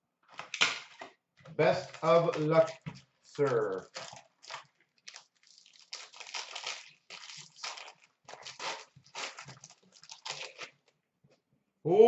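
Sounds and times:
cardboard and wrapper crinkling: 1.6s - 11.0s.

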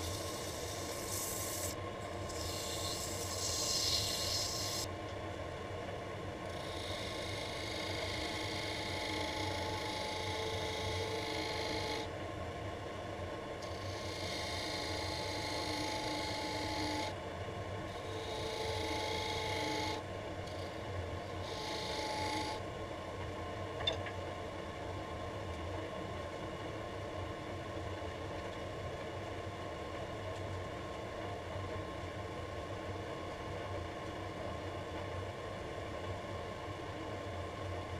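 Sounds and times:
wood lathe running: 0.0s - 4.8s, 6.6s - 12.0s, 13.7s - 17.1s, 18.2s - 20.0s, 21.4s - 22.6s
tool scraping spinning wood: 0.0s - 4.9s.

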